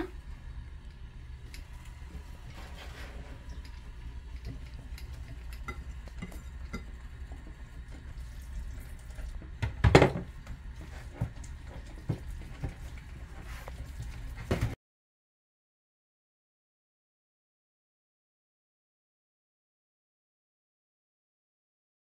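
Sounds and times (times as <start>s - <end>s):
utensil stirring mixture in a pot: 0.0s - 14.7s
steady low hum: 0.0s - 14.8s.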